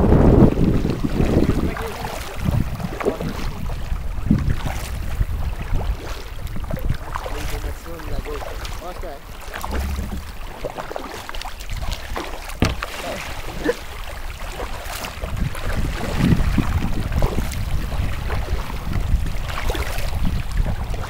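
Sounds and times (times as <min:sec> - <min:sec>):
water splashing against hull: 0:00.0 - 0:21.0
wind buffeting microphone: 0:00.0 - 0:21.0.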